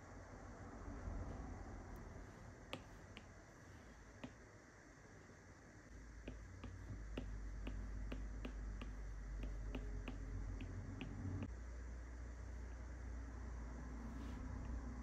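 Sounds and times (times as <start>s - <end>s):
stylus tapping on glass screen: 6.3s - 11.2s.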